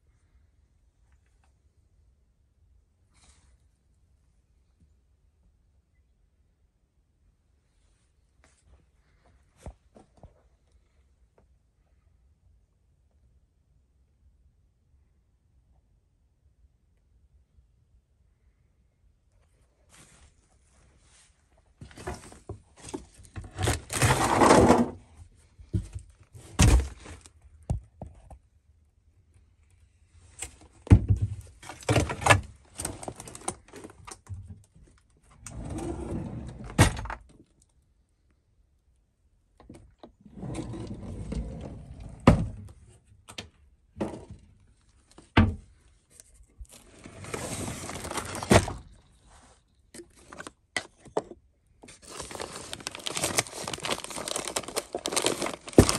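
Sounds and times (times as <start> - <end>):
debris rustling and scraping: 46.2 - 49.4, 51.8 - 55.9.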